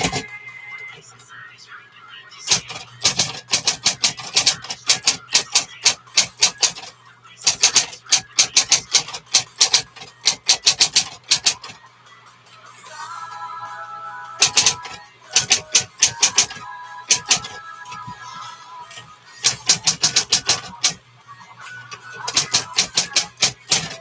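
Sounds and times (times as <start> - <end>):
typewriter key strikes: 2.5 - 11.8, 14.4 - 17.6, 19.4 - 21.0, 22.2 - 24.0.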